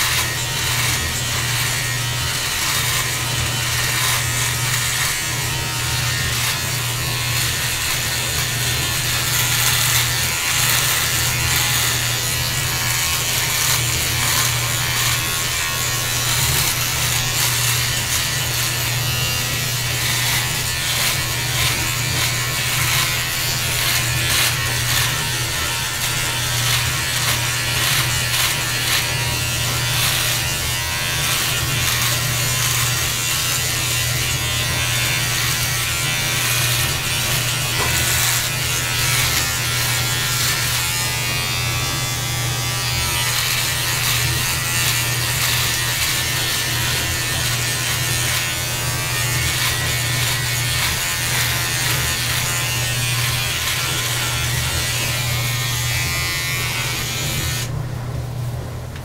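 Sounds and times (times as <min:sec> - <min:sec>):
electric beard trimmer buzzing: 0:00.0 - 0:57.7.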